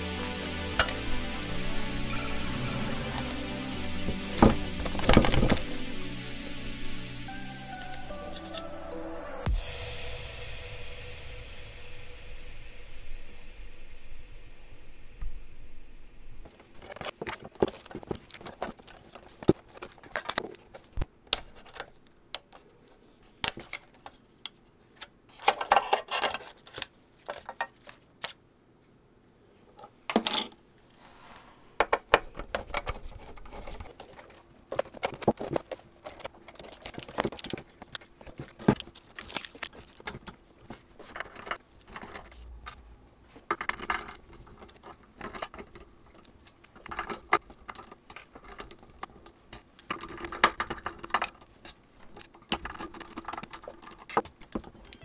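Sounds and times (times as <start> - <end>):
short scrapes: 30.9 - 31.8.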